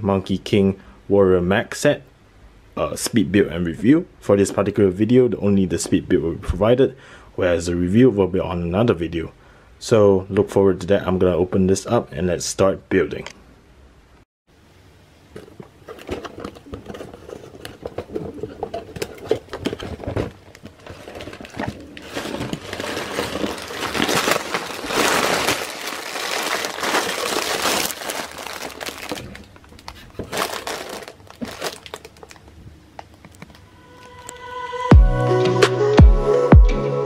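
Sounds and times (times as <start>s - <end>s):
cardboard box being opened: 15.4s - 29.4s, 30.0s - 32.4s
plastic bags crinkling: 15.4s - 33.6s.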